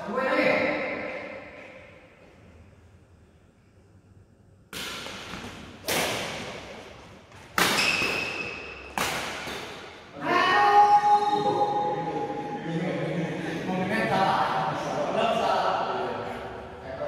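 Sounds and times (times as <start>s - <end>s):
racket striking shuttlecock: 4.7s - 6.8s, 7.4s - 10.0s
players' voices: 10.0s - 17.0s.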